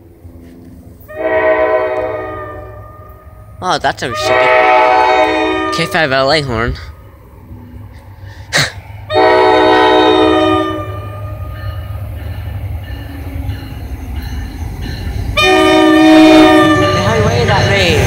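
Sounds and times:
low rumble of approaching train: 0:00.0 - 0:18.0
locomotive horn blasts: 0:01.1 - 0:03.4, 0:04.0 - 0:06.3, 0:09.1 - 0:11.4, 0:15.4 - 0:17.3.

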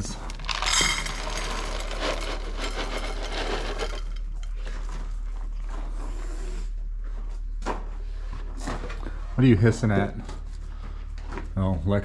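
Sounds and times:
kibble poured into metal bowl: 0:00.0 - 0:04.5
cats eating kibble: 0:00.0 - 0:06.8.

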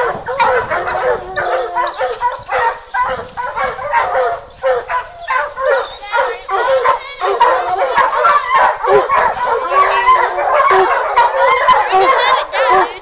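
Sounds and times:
hounds barking and yelping: 0:00.0 - 0:13.0.

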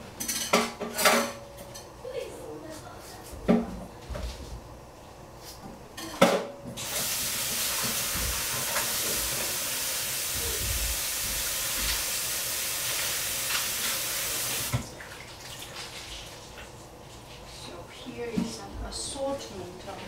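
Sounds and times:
kitchen tap running: 0:06.7 - 0:16.8.

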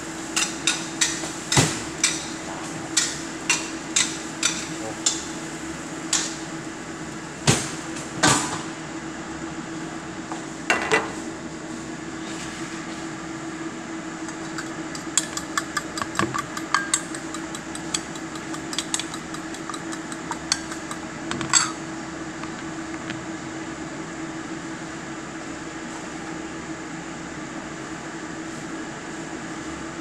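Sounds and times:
steady hum: 0:00.0 - 0:30.0
utensil clicking on steel bowl: 0:03.0 - 0:05.2, 0:14.3 - 0:21.8.

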